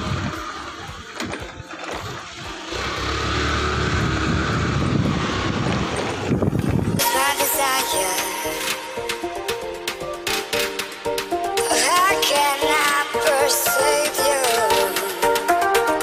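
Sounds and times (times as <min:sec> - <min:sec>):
scooter engine running: 0:00.0 - 0:07.2
electronic music: 0:06.8 - 0:16.0.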